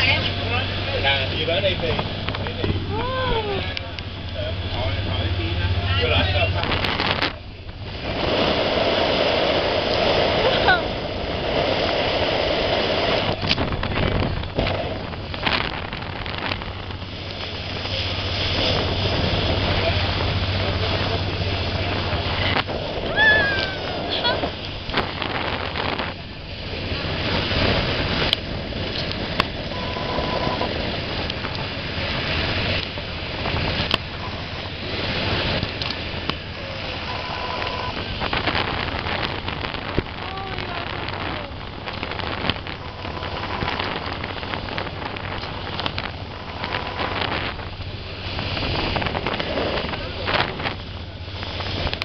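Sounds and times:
motorboat engine: 0:00.0 - 0:52.0
rushing wake and spray: 0:00.0 - 0:52.0
water noise: 0:00.0 - 0:52.0
wind buffeting microphone: 0:00.0 - 0:52.0.

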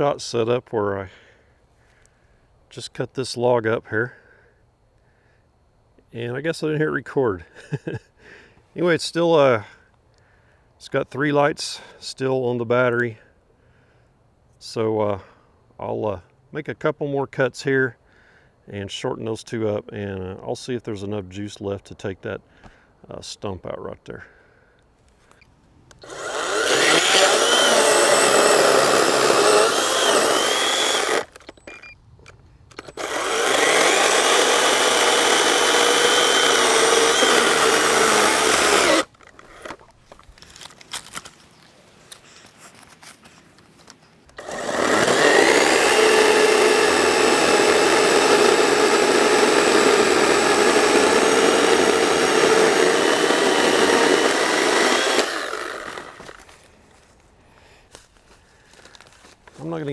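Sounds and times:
chainsaw cutting through log: 0:26.0 - 0:31.4, 0:32.8 - 0:39.8, 0:44.4 - 0:56.5.

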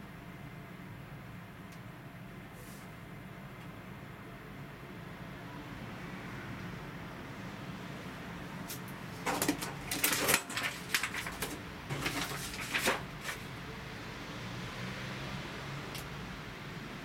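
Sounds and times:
paper rustling and crackling: 0:08.7 - 0:13.6.

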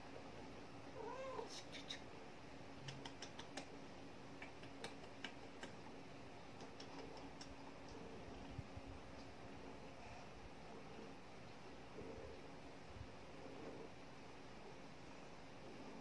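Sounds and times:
cat meowing: 0:01.0 - 0:01.5
faint sharp clicks: 0:02.8 - 0:03.8, 0:04.4 - 0:05.9, 0:06.5 - 0:08.1.

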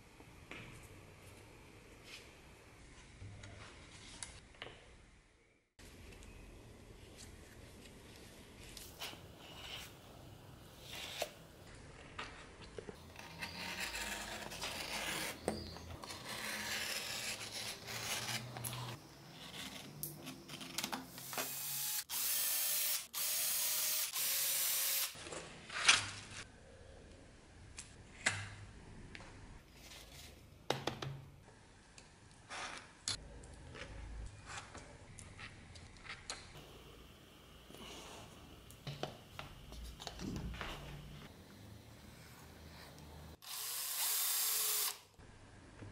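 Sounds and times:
knife cutting leather: 0:13.1 - 0:20.2.

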